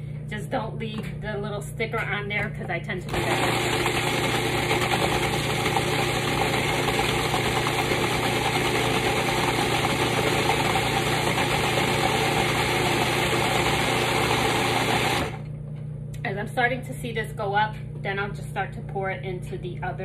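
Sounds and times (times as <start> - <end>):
food processor running: 3.0 - 15.5.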